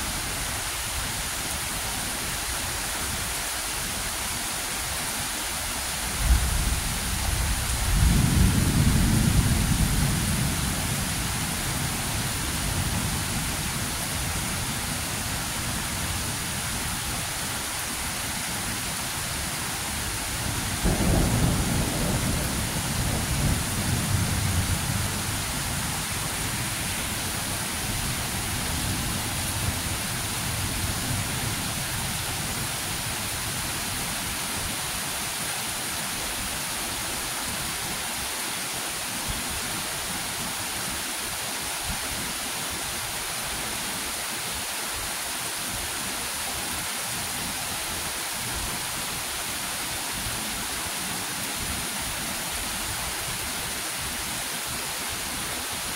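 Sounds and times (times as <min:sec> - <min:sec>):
rain hiss: 0:00.0 - 0:55.9
low rumble of thunder: 0:06.2 - 0:14.0, 0:20.2 - 0:32.2.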